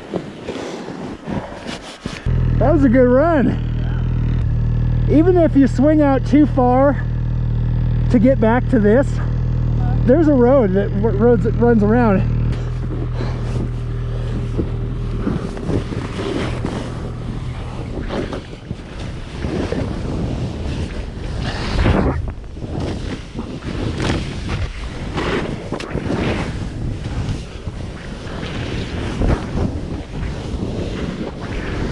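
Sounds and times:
snowboard swishing through snow: 0.0 - 2.3, 22.7 - 31.9
wind on microphone: 12.9 - 31.9.

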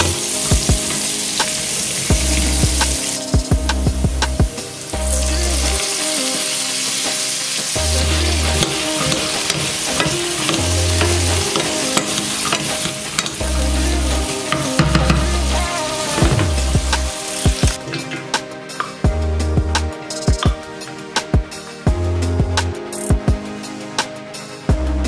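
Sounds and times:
food sizzling in hot oil: 0.0 - 3.5, 4.5 - 17.8
utensils clicking and scraping pan: 8.0 - 18.4.

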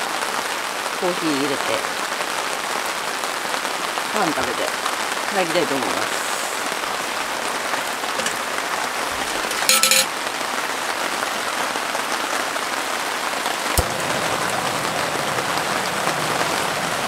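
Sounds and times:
steady rain falling: 0.0 - 17.0
kettle clattering on metal stove: 8.2 - 8.5, 9.1 - 10.1.

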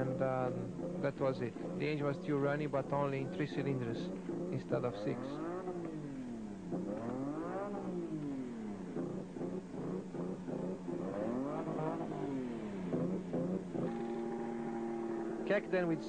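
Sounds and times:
racing car engine revving: 0.0 - 16.0.

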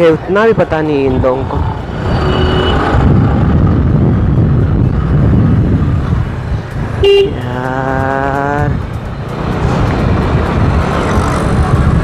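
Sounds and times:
wind and road noise: 0.0 - 12.0
vehicle horn toot: 2.2 - 2.9, 7.0 - 7.4.

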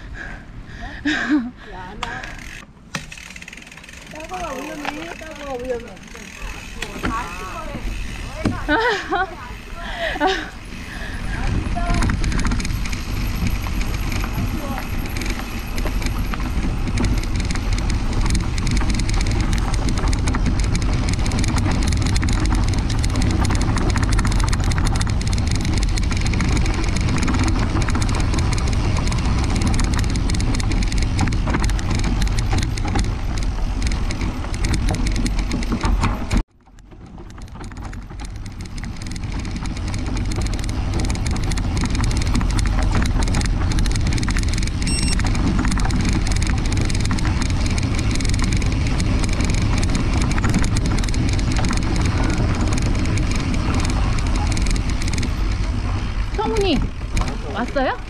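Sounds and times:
bike tyre noise on dirt: 0.0 - 58.0
wind on microphone: 6.6 - 36.4.

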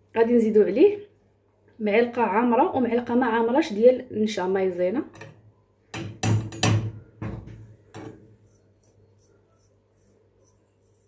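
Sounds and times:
glass bowl knocking on saucepan: 6.0 - 7.5.

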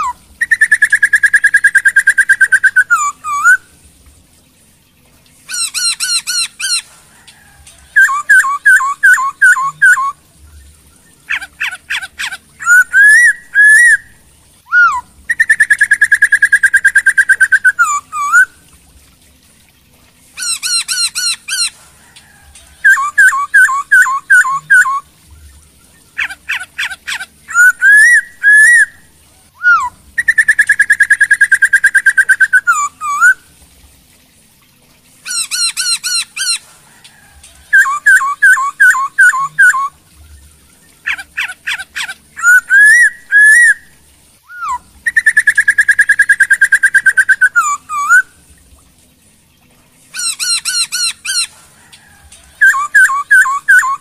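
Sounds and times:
bird song whistles: 0.0 - 3.7, 7.9 - 10.2, 11.3 - 14.1, 14.7 - 18.6, 22.8 - 25.0, 27.5 - 29.0, 29.6 - 33.4, 37.7 - 40.0, 41.4 - 43.9, 44.5 - 48.3, 50.2 - 51.5, 52.6 - 54.0.

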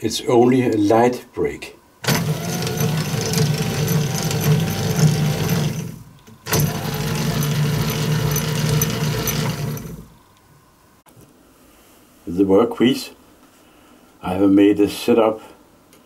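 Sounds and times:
electric motor driving gears: 2.0 - 10.2.

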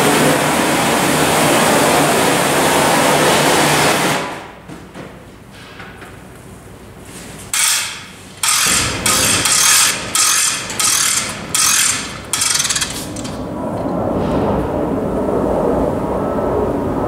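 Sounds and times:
hose reel ratcheting: 7.6 - 13.9.

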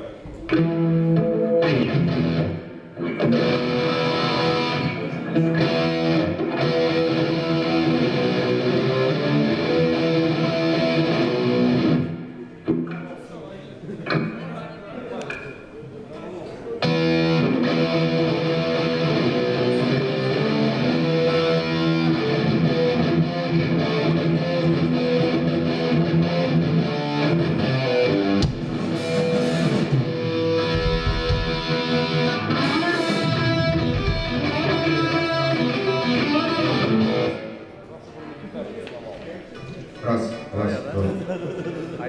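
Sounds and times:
electric guitar chords: 0.3 - 12.9, 16.8 - 37.8.

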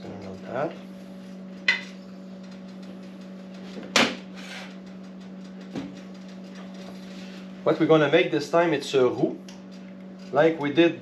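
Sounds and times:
steady hum: 0.0 - 11.0
utensils and frying pan clattering: 1.6 - 2.0.

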